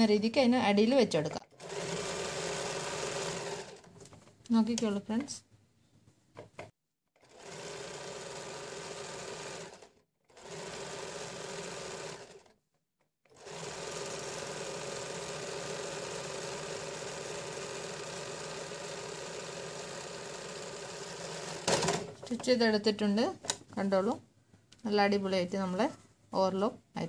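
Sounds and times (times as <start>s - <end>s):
electric sewing machine running: 1.4s - 3.9s, 7.2s - 12.6s, 13.2s - 22.1s.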